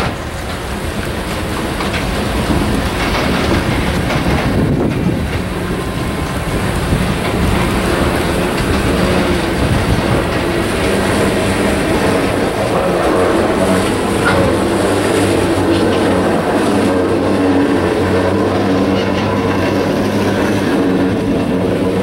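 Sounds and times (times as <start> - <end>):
train wheels rumbling on rails: 0.0 - 22.0
wheels clicking over rail joints: 0.0 - 22.0.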